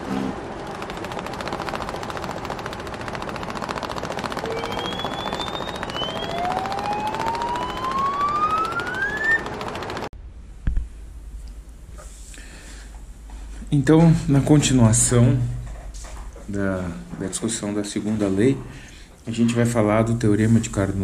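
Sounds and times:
dense rapid rattling: 0.4 - 10.1
rising whistle-like tone: 4.4 - 9.5.

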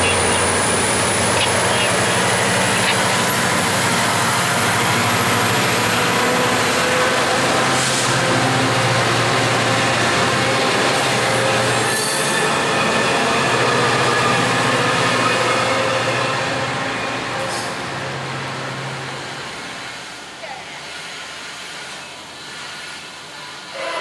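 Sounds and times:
wheels squealing: 0.0 - 17.9
train wheels rushing on rail: 0.0 - 24.0.

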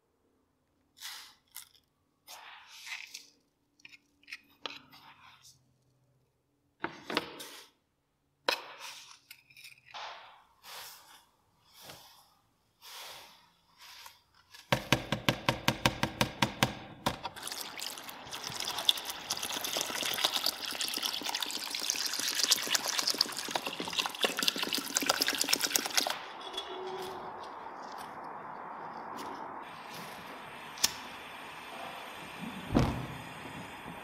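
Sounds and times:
water pouring into metal tray: 17.3 - 26.3.

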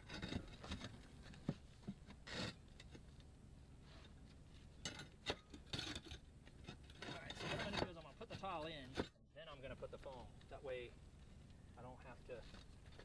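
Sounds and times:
roof tiles knocking and scraping: 4.8 - 9.2.

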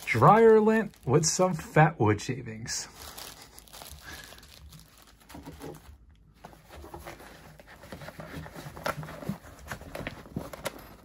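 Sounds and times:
plastic zip bag rustling: 0.0 - 1.4, 2.9 - 6.0
hands moving nylon pouch: 2.9 - 5.9.

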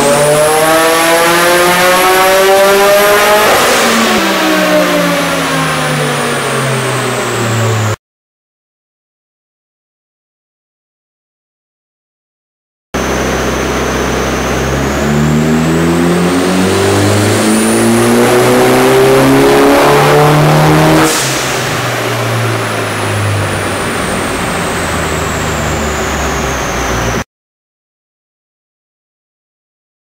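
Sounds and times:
turbocharged engine revving: 0.0 - 8.0, 13.0 - 27.2
high whine: 13.0 - 27.2.

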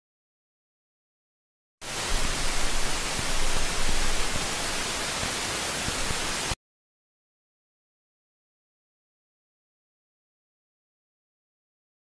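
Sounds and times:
loud static hiss: 1.8 - 6.6.

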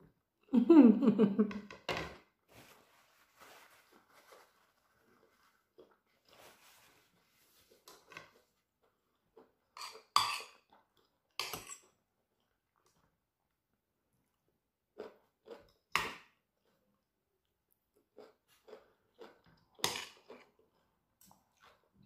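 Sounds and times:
faint chewing: 4.4 - 13.6, 14.3 - 22.0
cutlery scraping a plate: 9.8 - 10.7, 11.4 - 11.9.

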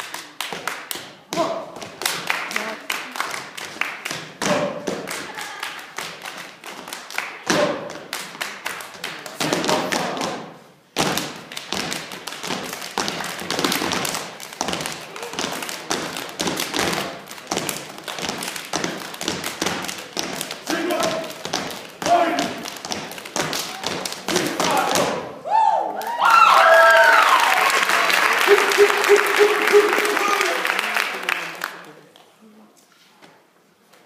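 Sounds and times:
rhythmic foot stomps on stage: 9.4 - 25.3
hand claps: 27.1 - 31.9.

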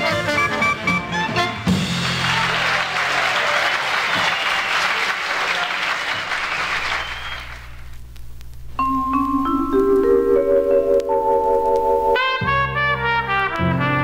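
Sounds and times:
jazz band playing: 0.0 - 2.6, 8.8 - 14.0
audience applauding on a record: 1.7 - 8.0.

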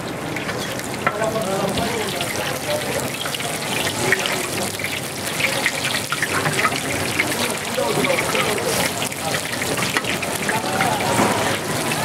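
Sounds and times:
patties sizzling in hot oil: 0.0 - 12.0.

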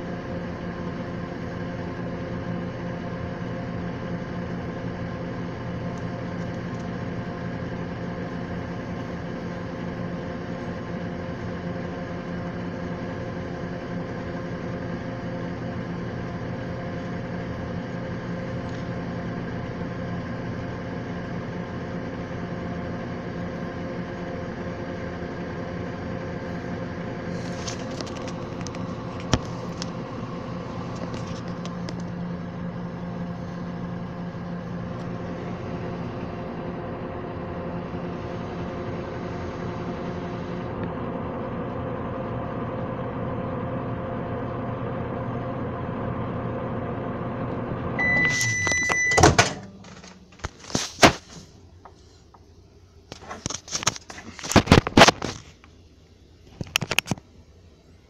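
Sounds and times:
microwave oven humming: 0.0 - 58.0
microwave beep: 47.6 - 50.2.

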